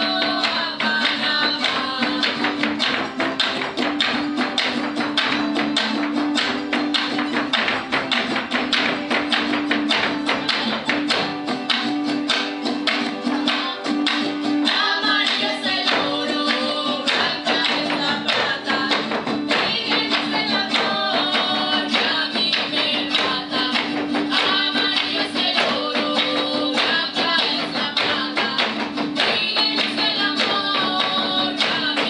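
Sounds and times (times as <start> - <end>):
person singing: 0.0 - 3.5, 9.9 - 11.3, 13.0 - 32.0
folk music: 0.0 - 32.0.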